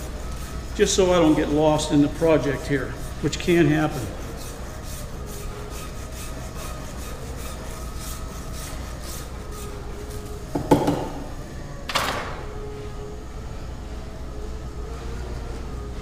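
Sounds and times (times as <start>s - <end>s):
metal rasp scraping plaster: 0.0s - 9.8s
loud knock: 10.6s - 11.2s.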